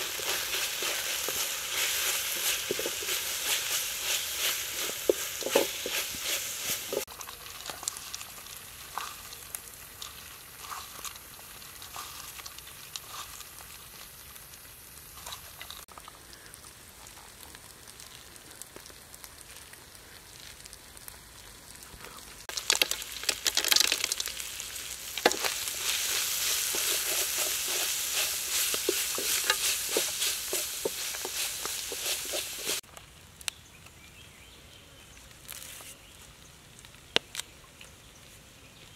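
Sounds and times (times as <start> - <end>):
spatula scraping a wok: 0.0 - 7.1, 25.2 - 32.8
meat sizzling in a wok: 0.0 - 21.8, 22.4 - 32.8.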